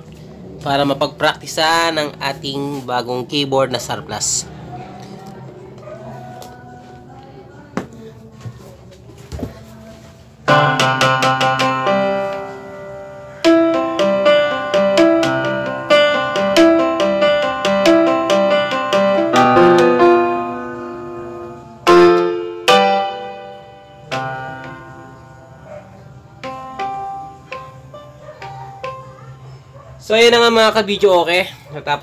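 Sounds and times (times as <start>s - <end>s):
electronic keyboard playing piano: 10.4s - 31.1s.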